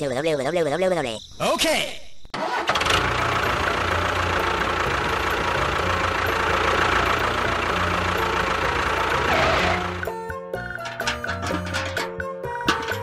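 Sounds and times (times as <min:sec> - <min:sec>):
motor chugging: 0:02.7 - 0:10.1.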